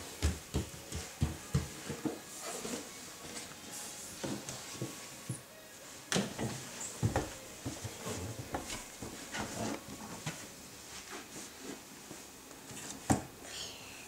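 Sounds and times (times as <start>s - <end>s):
toddler crawling on wooden stairs: 6.4s - 10.4s.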